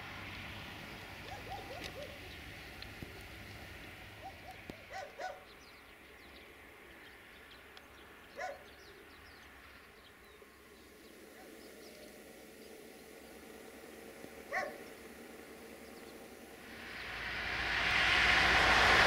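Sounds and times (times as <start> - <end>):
distant animal calls: 1.2 - 2.3.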